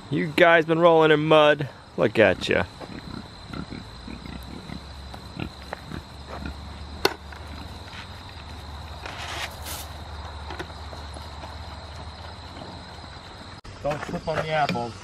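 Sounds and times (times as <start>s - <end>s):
crickets chirring: 0.0s - 15.0s
pigs grunting: 2.0s - 9.0s, 10.8s - 13.6s.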